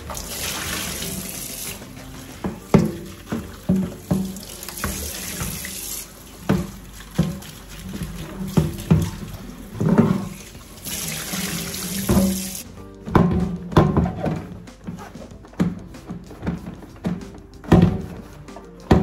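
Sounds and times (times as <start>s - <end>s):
tap water running into sink: 0.0s - 13.3s.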